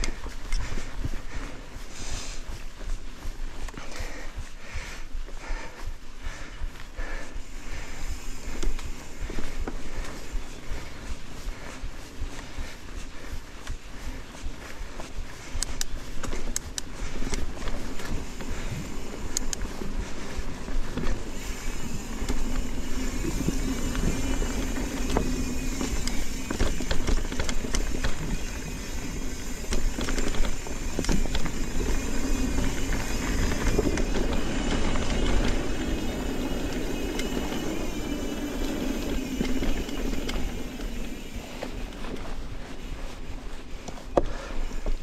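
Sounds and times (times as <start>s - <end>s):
tyre and wind rumble: 0.0s - 45.0s
bike knocks and rattles: 20.6s - 42.2s.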